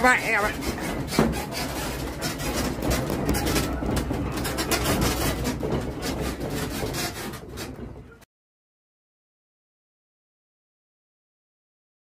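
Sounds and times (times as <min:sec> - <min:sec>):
objects clattering: 0:00.0 - 0:08.2
room rattling and creaking: 0:00.0 - 0:08.3.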